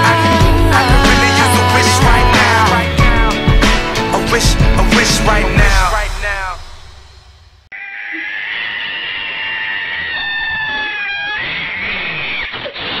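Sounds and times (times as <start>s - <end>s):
cat yowling: 7.7s - 13.0s.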